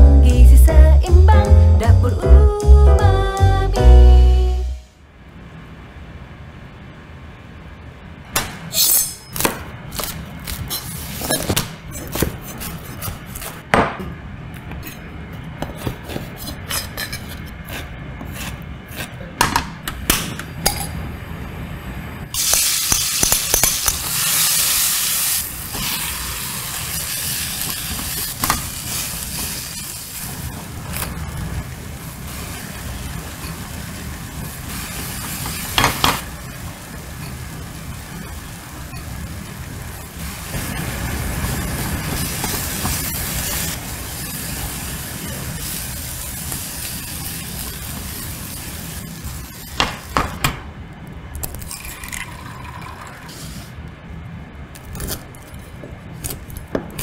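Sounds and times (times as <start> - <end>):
food sizzling in a pan: 22.4 - 50.2.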